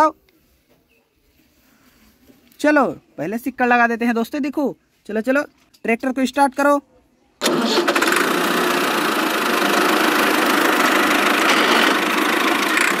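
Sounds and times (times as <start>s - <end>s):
tractor engine idling: 7.4s - 13.0s.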